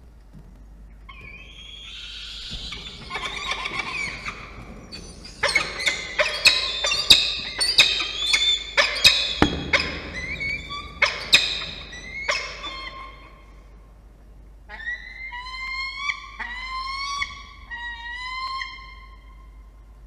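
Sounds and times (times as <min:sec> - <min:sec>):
falcons screaming: 0:01.2 - 0:13.5.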